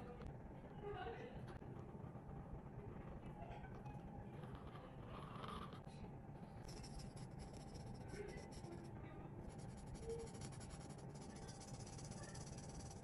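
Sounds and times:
marker scratching on paper: 6.7s - 8.8s, 9.5s - 13.0s.

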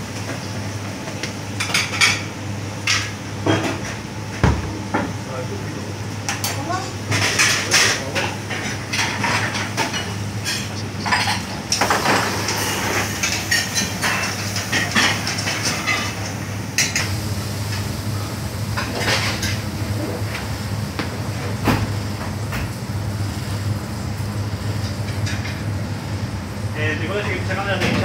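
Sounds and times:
pots and pans clanking: 6.3s - 17.1s, 18.7s - 20.4s, 24.8s - 25.7s.

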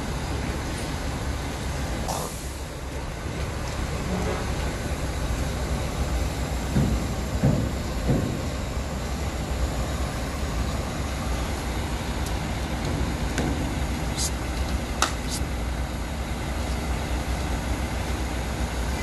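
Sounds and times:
heavy machinery rumbling: 0.0s - 19.0s
short knocks: 6.7s - 8.5s.

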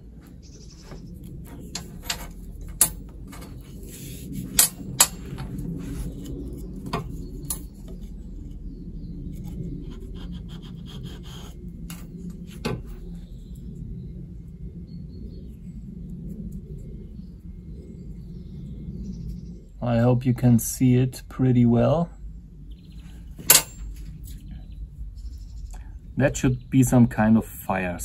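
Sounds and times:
cord rubbing: 0.7s - 8.2s.

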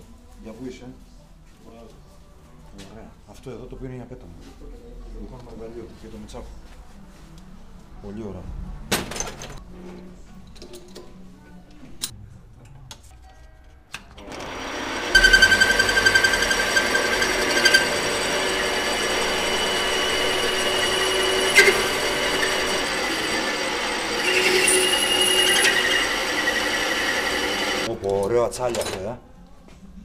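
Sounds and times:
metal lathe whining: 14.2s - 27.9s.

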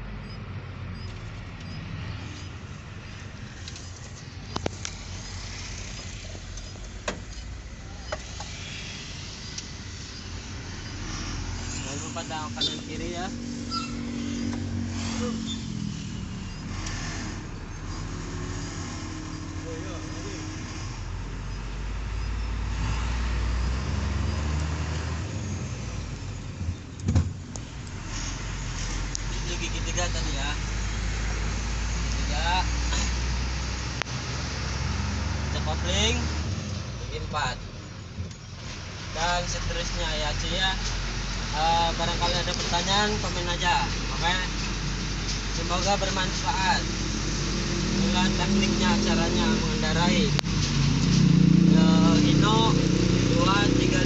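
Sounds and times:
truck diesel engine drone: 0.0s - 54.0s
sharp thump: 27.0s - 27.4s.

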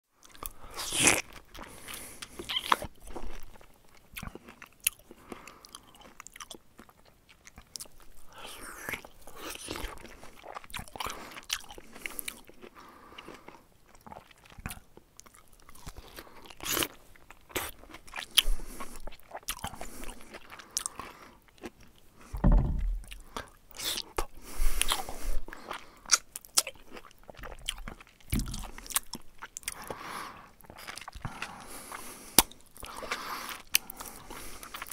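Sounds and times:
person chewing and crunching: 0.2s - 34.9s
wet mouth noises: 0.4s - 3.5s
dull thump: 22.4s - 23.1s.

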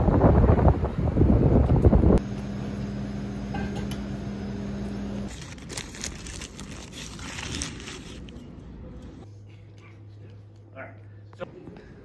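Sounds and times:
foil wrapper crinkling: 5.3s - 8.5s.

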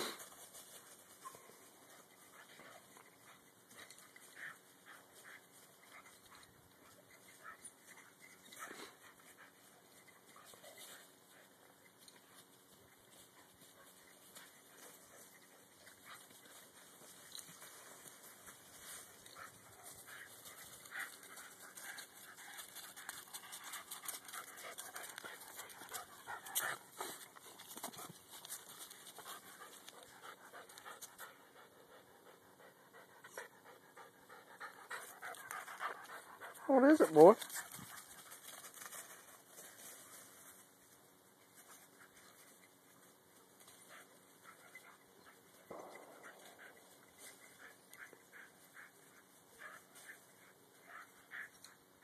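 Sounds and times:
puppy panting: 0.0s - 40.2s.

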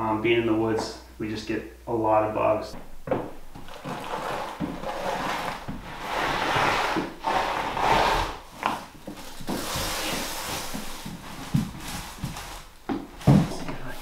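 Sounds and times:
underlayment roll rustling: 3.5s - 13.9s.

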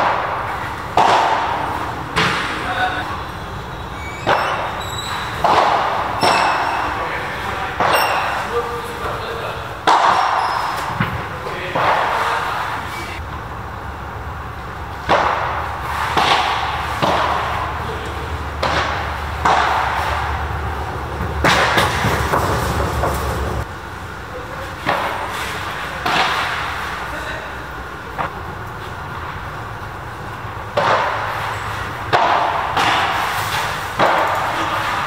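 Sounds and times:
rackets striking ball: 0.0s - 13.2s, 14.1s - 23.7s, 24.7s - 27.1s, 27.9s - 35.0s
ball bouncing off glass walls: 4.0s - 9.0s.

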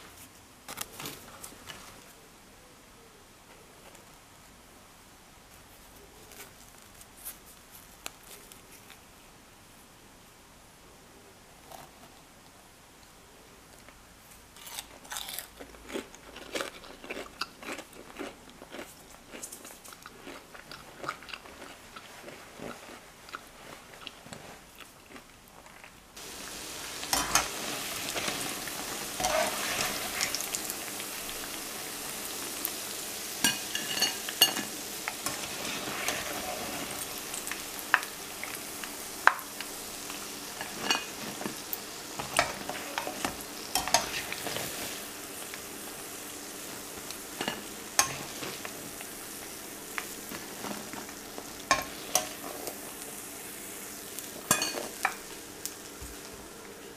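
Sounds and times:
crunching of fried doughnuts: 14.5s - 26.4s
deep-frying sizzle in hot oil: 26.2s - 56.9s.

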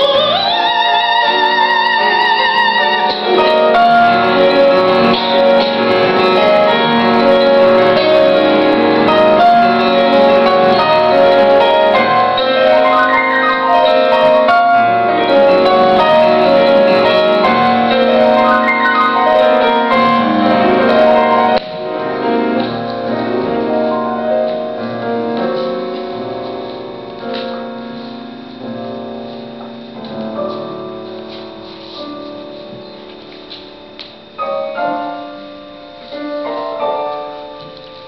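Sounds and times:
piano playing: 0.0s - 38.0s.

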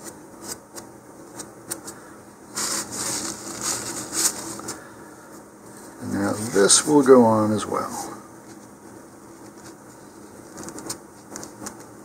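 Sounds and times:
paper tissue rustling: 1.9s - 8.7s.

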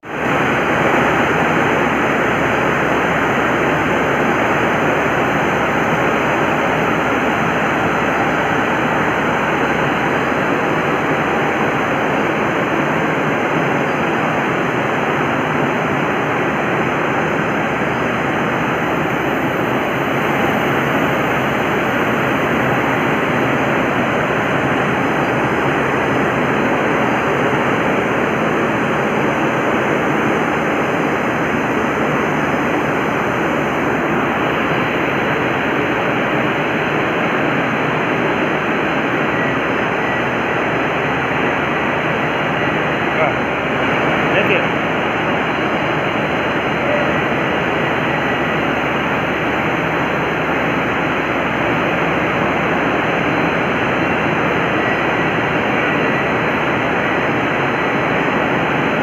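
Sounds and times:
loud steady machine noise: 0.0s - 59.0s.

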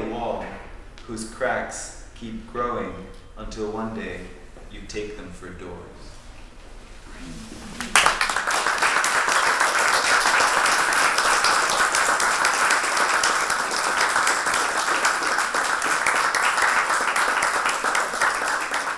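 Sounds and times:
audience applauding: 7.8s - 18.9s.

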